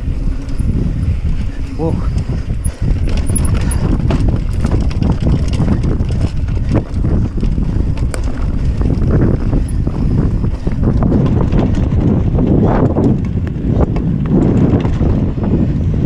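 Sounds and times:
bike rattling: 0:00.0 - 0:16.0
wind rumbling on microphone: 0:00.0 - 0:16.0.

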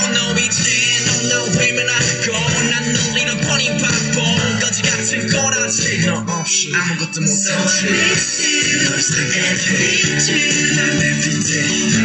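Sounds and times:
loud music with singing: 0:00.0 - 0:12.0.

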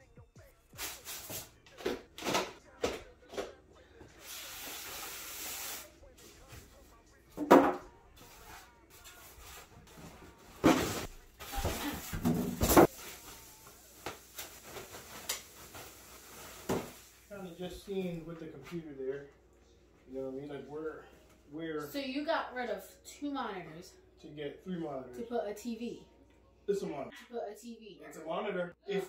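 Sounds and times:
knocks of foam packing and box: 0:10.5 - 0:13.0.

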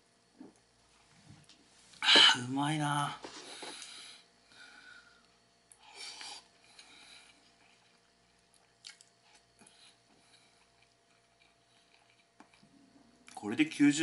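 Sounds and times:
quiet chewing: 0:05.2 - 0:13.4.

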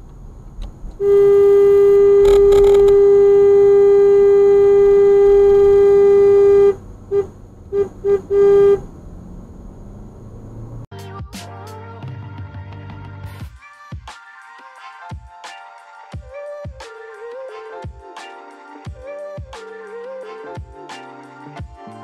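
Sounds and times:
car horn blasts: 0:01.0 - 0:08.9
music: 0:10.9 - 0:22.0.

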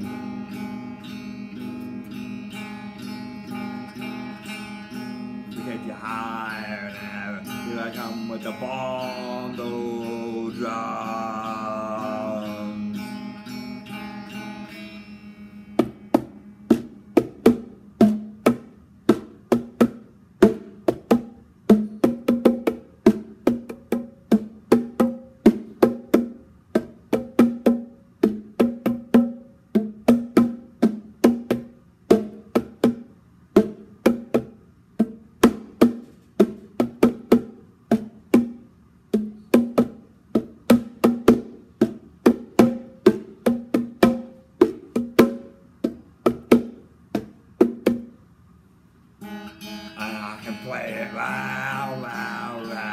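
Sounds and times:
electric guitar chord ringing: 0:00.0 - 0:16.7, 0:49.2 - 0:52.9
picked guitar notes: 0:00.0 - 0:17.2, 0:49.2 - 0:52.9.

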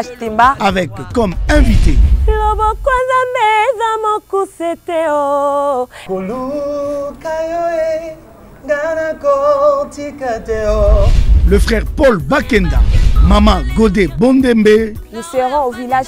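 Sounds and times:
woman singing: 0:02.3 - 0:07.2, 0:12.4 - 0:16.0
gospel singing: 0:05.1 - 0:16.0.

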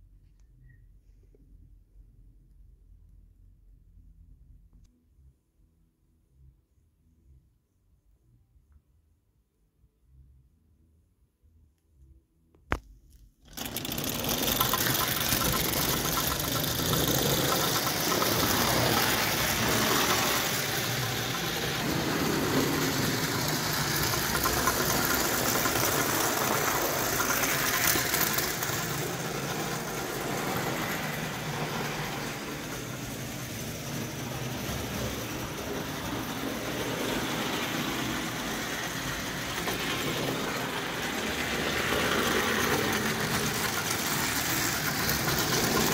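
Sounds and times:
toy steam locomotive chatter: 0:13.5 - 0:45.9.

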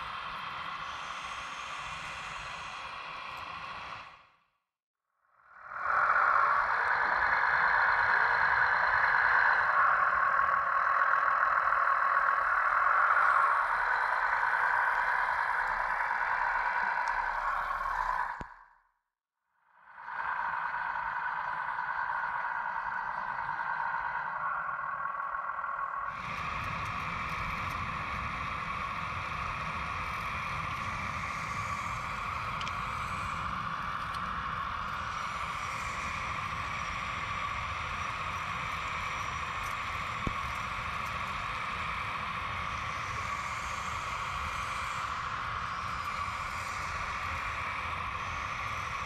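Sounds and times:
click: 0:17.0 - 0:17.2, 0:18.3 - 0:18.6, 0:32.6 - 0:32.8.

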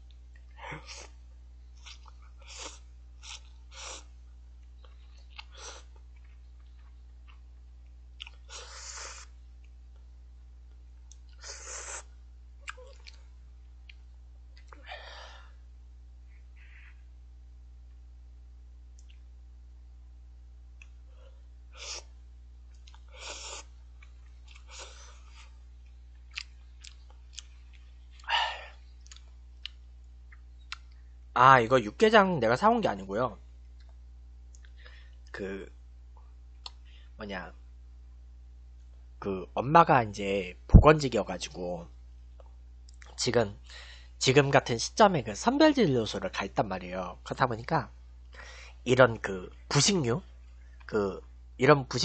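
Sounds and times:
chewing: 0:01.8 - 0:07.4, 0:08.2 - 0:08.6, 0:12.6 - 0:14.0, 0:22.7 - 0:28.3, 0:29.0 - 0:31.0
slurping noodles: 0:23.2 - 0:23.7.

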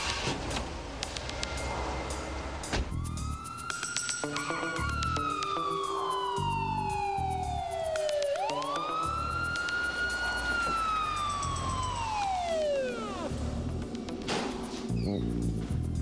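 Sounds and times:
ambulance siren wailing: 0:02.9 - 0:14.2.

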